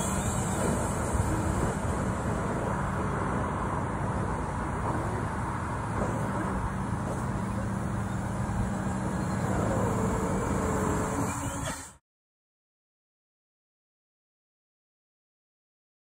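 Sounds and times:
low machine hum: 0.0s - 12.0s
compressed air hose hissing: 9.8s - 12.0s.

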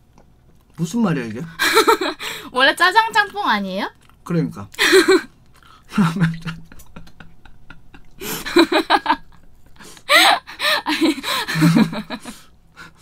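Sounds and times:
people laughing breathily: 5.9s - 13.0s.

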